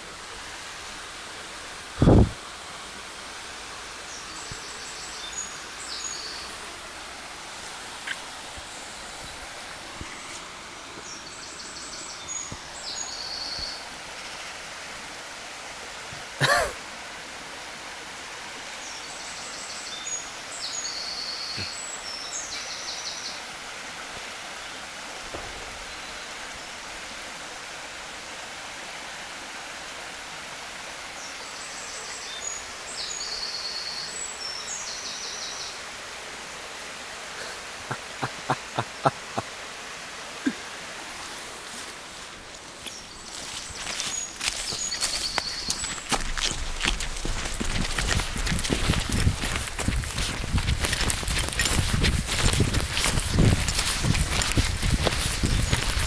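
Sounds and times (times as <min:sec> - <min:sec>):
stream running: 0:00.0 - 0:56.0
songbird singing: 0:04.0 - 0:07.2, 0:08.0 - 0:14.6, 0:18.7 - 0:23.5, 0:24.6 - 0:27.0, 0:31.1 - 0:35.9, 0:41.7 - 0:56.0.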